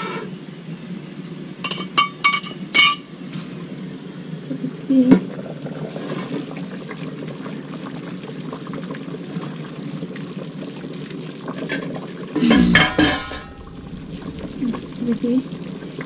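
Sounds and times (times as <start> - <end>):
curry bubbling in a pot: 4.4 - 16.0.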